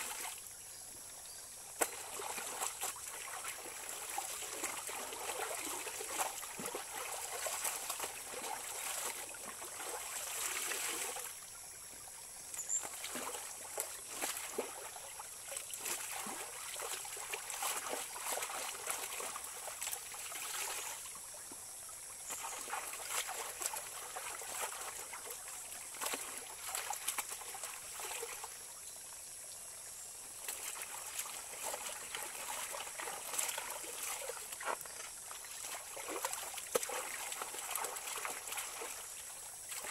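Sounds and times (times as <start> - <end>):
shallow stream running: 0.0 - 39.9.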